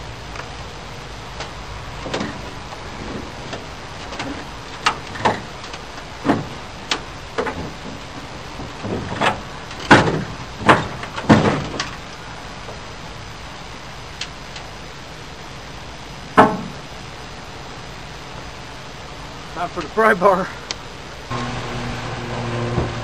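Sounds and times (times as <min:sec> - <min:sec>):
sheet metal knocks and clanks: 0:04.1 - 0:11.9, 0:16.4 - 0:16.8.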